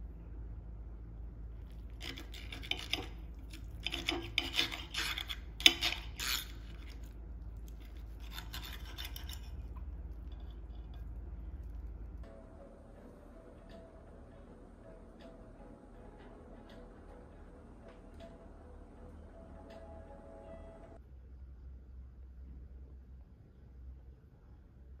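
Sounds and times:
cutlery scraping on a ceramic plate: 0:02.0 - 0:07.1, 0:08.2 - 0:09.8.

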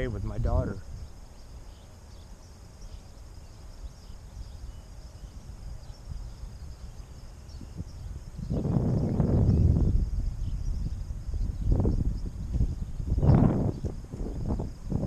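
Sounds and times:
wind rumble on microphone: 0:00.0 - 0:01.8, 0:03.3 - 0:15.0
faint insect chirring: 0:00.0 - 0:15.0.

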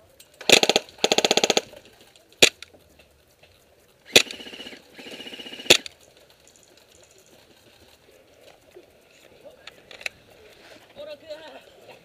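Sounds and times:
airsoft guns firing bursts: 0:00.4 - 0:01.8, 0:04.1 - 0:05.9.

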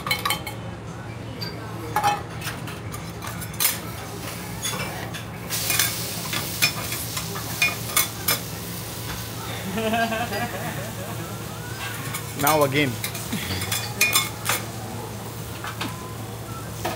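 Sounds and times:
noodles sizzling on a griddle: 0:03.9 - 0:16.9.

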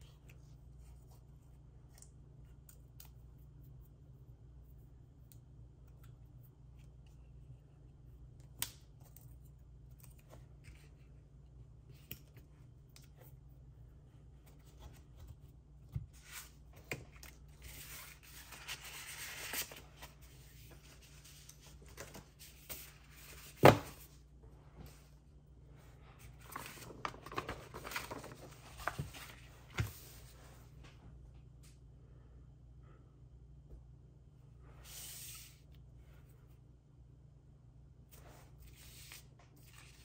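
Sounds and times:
paper rustling: 0:16.0 - 0:24.1, 0:26.2 - 0:30.4, 0:38.5 - 0:40.0.

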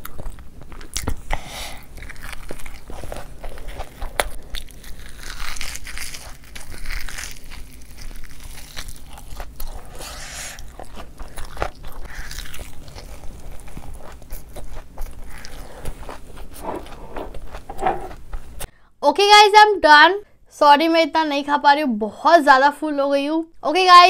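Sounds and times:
chewing crunchy food: 0:00.0 - 0:18.5.

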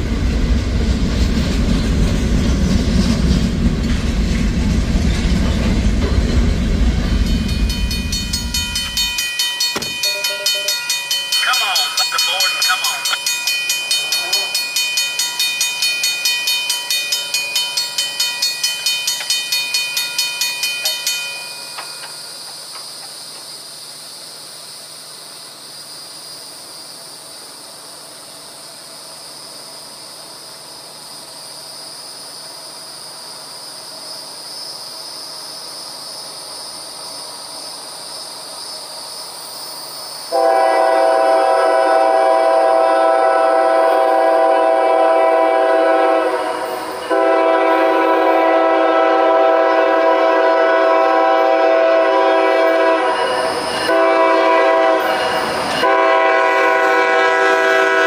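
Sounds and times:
crossing warning bell ringing: 0:07.1 - 0:22.7, 0:52.3 - 0:56.5
high-pitched background noise: 0:09.8 - 0:15.3
locomotive air horn: 0:40.3 - 0:53.3, 0:53.9 - 0:58.0.

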